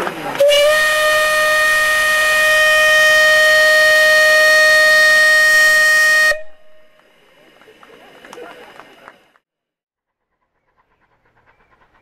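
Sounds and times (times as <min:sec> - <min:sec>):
steam locomotive whistle: 0:00.4 - 0:06.9.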